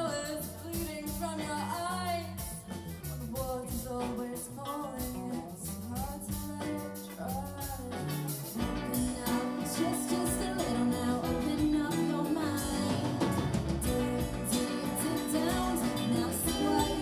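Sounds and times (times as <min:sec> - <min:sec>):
women singing: 0:00.0 - 0:02.7, 0:03.3 - 0:17.0
drums: 0:00.0 - 0:17.0
electric guitars: 0:00.0 - 0:17.0
keyboard: 0:07.6 - 0:17.0.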